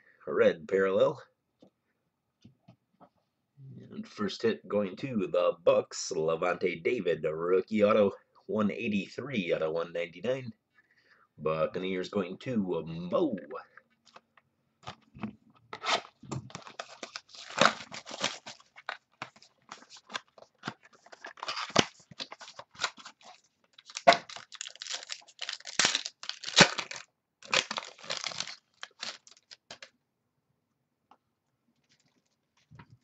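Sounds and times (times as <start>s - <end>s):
wrapper crinkling and tearing: 15.8s - 29.9s.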